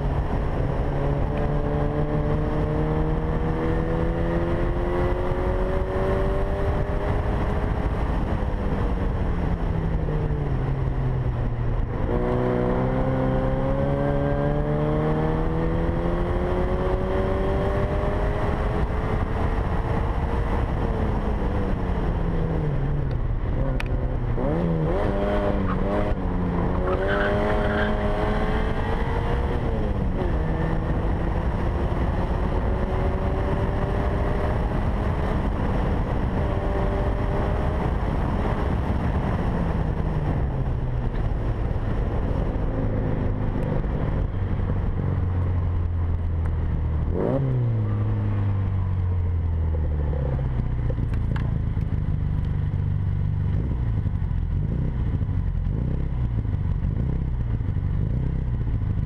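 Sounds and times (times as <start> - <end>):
wind and road noise: 0.0 - 59.0
car engine revving hard: 26.8 - 29.6.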